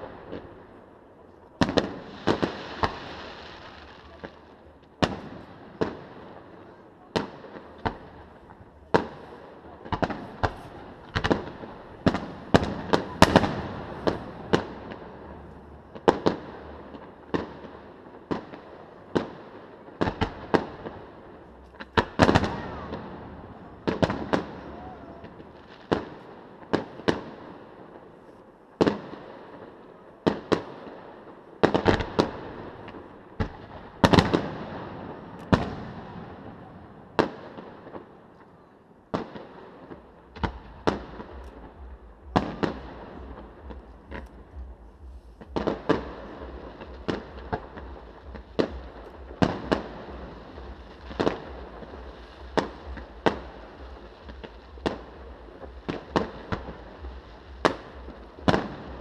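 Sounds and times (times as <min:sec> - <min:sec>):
distant fireworks bangs: 0:01.6 - 0:28.2, 0:28.8 - 0:38.3, 0:39.1 - 0:59.0.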